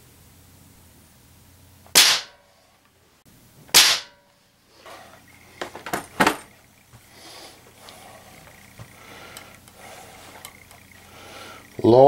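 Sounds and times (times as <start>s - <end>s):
air rifle shots: 1.9s - 2.4s, 3.7s - 4.2s.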